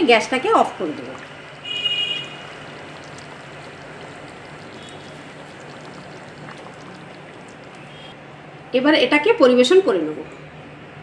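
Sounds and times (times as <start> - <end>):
gravy simmering hiss: 0.0 - 8.2
bubbling pops: 0.5 - 8.2.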